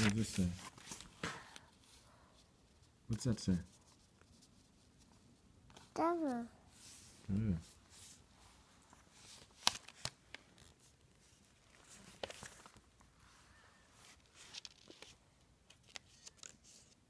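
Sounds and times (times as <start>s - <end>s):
paper rustling: 0.0s - 2.0s, 8.8s - 13.3s, 14.0s - 17.0s.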